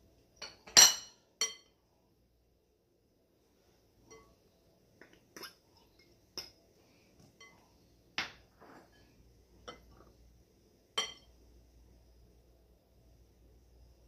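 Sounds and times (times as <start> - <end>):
glass bowls clinking: 0.4 - 1.8, 4.0 - 4.4, 7.4 - 10.1, 11.0 - 11.4.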